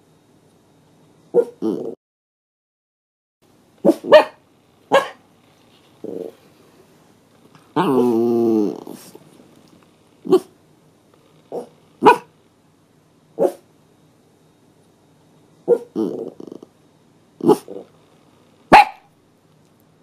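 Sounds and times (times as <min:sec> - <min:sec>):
dog barking and howling: 0:01.4 - 0:01.6, 0:03.8 - 0:05.2, 0:10.2 - 0:10.5, 0:11.5 - 0:12.3, 0:13.4 - 0:13.6, 0:15.7 - 0:16.4, 0:17.4 - 0:17.9, 0:18.7 - 0:19.1.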